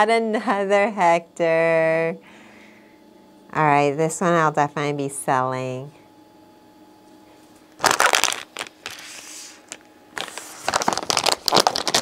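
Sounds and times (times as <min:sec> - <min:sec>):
plastic packaging crinkling: 0:07.8 - 0:12.0.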